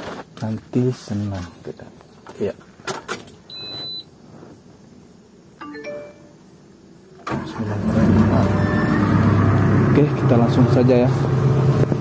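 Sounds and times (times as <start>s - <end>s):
cab monitor chime tones: 5.6s - 6.4s
diesel engine starting and running: 7.2s - 12.0s.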